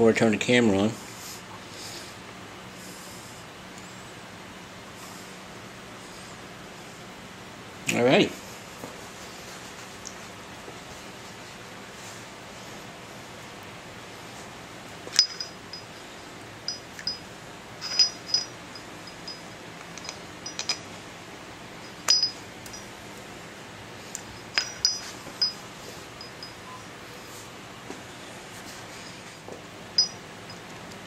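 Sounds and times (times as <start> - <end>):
metal parts clinking: 15.1 - 15.9, 17.8 - 20.9, 21.8 - 22.9, 24.2 - 25.6, 30.0 - 30.7.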